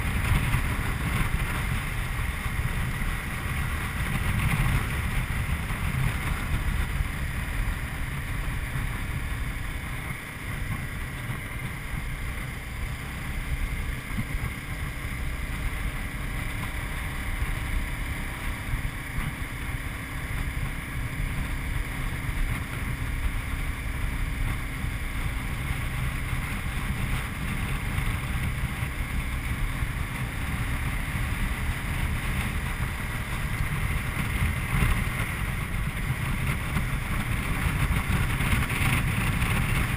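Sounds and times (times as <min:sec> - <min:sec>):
motorcycle engine running: 0:00.0 - 0:39.9
wind buffeting microphone: 0:00.0 - 0:39.9.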